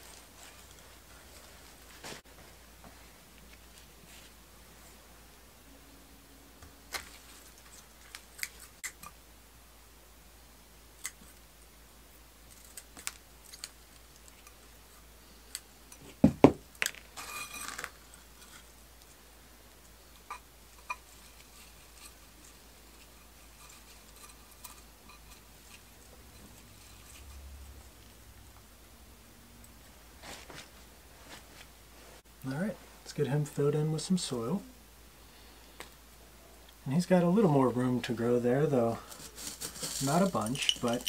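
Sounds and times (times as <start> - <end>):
hands handling potting mix: 38.7 - 41.0
scratchy rustle: 38.8 - 41.0.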